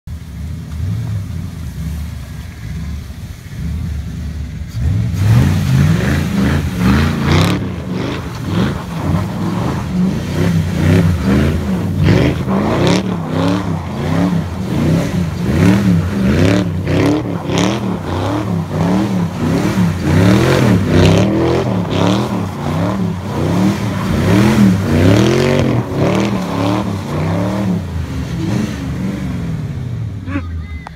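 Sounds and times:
car engine idling: 0.1 - 5.7
car engine revving: 0.2 - 30.3.

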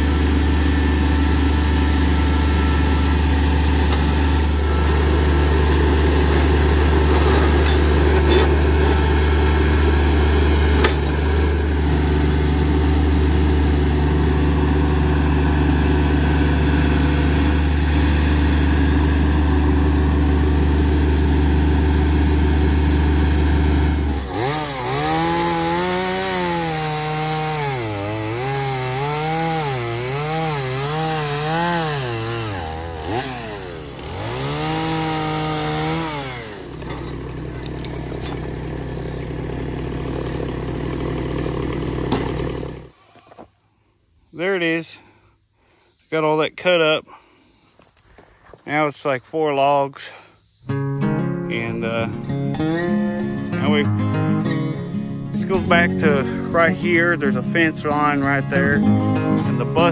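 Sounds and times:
chainsaw cutting tree trunk: 0.0 - 43.0
tractor diesel engine running: 0.0 - 43.0, 50.8 - 59.9.

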